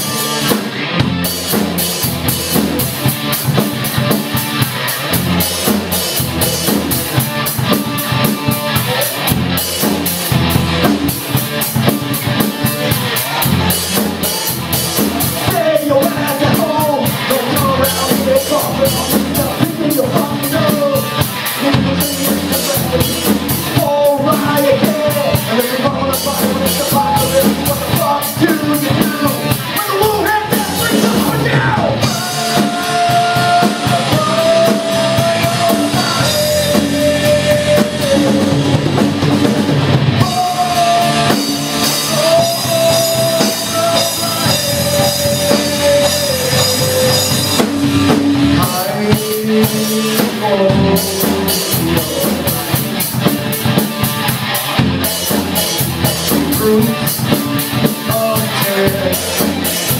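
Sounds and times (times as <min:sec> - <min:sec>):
drum kit with busy cymbals: 0:00.0 - 0:59.9
electric guitars: 0:00.0 - 0:59.9
live rock band playing: 0:00.0 - 0:59.9
person singing: 0:12.1 - 0:39.4, 0:40.1 - 0:53.8, 0:55.2 - 0:59.9.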